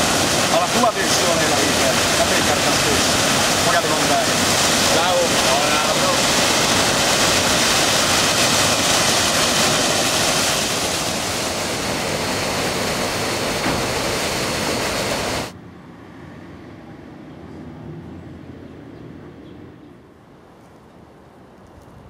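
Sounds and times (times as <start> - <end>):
fountain water splashing into basin: 0.0 - 15.6.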